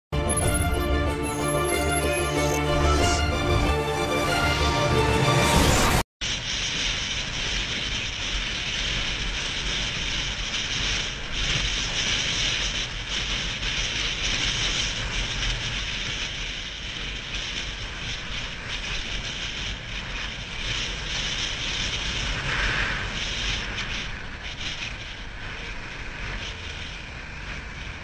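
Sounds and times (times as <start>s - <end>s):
wind rushing over microphone: 6.2s - 28.0s
low rumble of engine and road: 6.6s - 28.0s.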